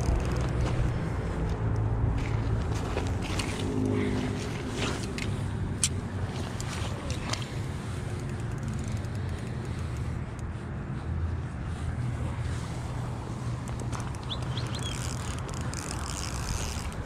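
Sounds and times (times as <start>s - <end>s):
light sharp clicks: 4.9s - 10.5s.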